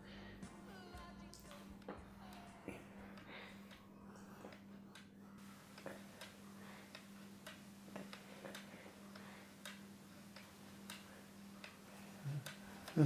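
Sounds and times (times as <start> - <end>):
low steady hum: 0.0 - 13.0
clock ticking: 5.7 - 13.0.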